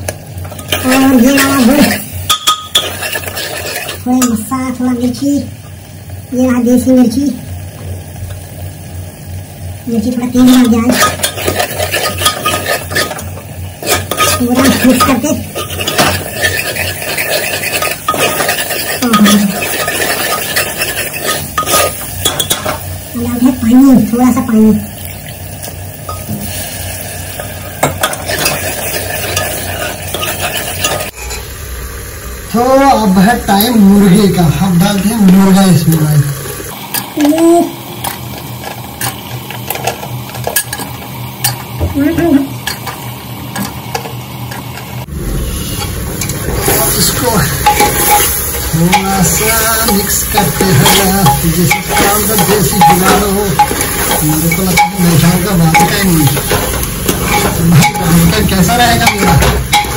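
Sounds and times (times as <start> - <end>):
masala sizzling in oil: 0.0 - 59.9
ladle scraping metal pot: 0.6 - 4.0, 10.5 - 22.8, 27.8 - 31.5, 45.6 - 59.9.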